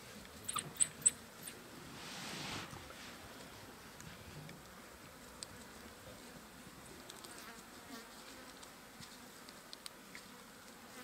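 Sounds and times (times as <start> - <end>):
flies buzzing: 2.6 - 11.0.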